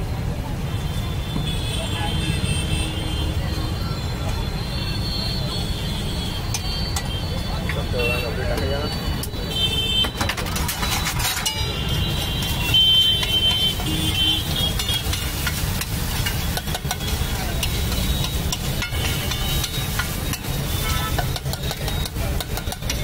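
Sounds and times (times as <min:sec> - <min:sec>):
steel ladle scraping on griddle: 0:10.1 - 0:23.0.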